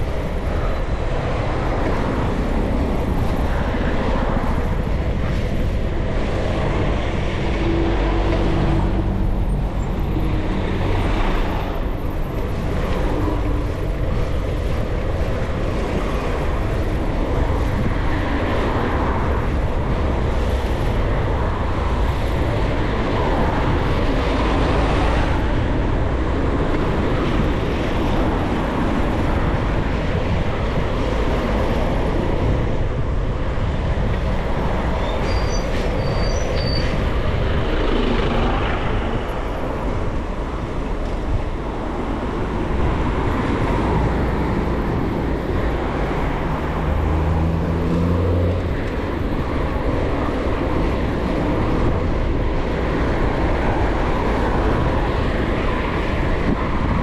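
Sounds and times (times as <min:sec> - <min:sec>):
road traffic: 0:00.0 - 0:57.0
wind rushing over microphone: 0:00.0 - 0:57.0
short high squeaks: 0:35.0 - 0:37.0.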